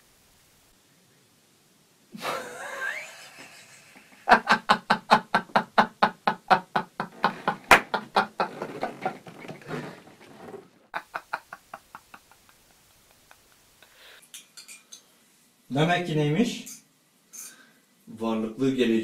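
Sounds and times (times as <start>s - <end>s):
man laughing loudly: 2.2s - 9.5s, 10.9s - 13.8s
sharp slap: 7.7s - 8.0s.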